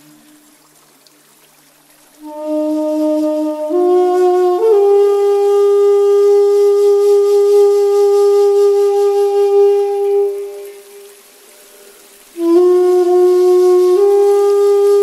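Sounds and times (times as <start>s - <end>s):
wind instrument long note: 2.2s - 11.2s, 12.3s - 15.0s.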